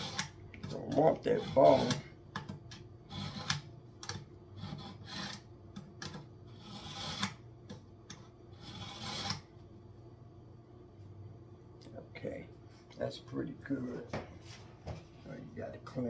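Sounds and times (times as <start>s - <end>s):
knife scraping on concrete: 0.0s - 2.1s, 3.0s - 3.7s, 4.5s - 5.5s, 6.5s - 7.4s, 8.1s - 9.5s.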